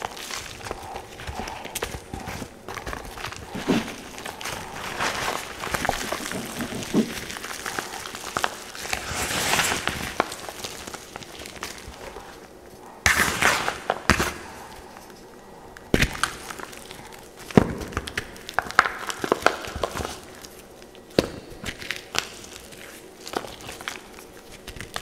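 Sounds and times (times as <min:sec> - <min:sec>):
chalk and soap crunching by hand: 0:00.0 - 0:15.2.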